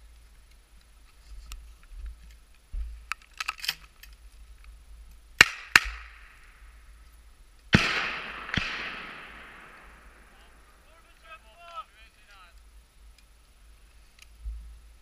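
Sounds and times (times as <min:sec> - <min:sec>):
gunshots with echo: 0:07.7 - 0:10.9.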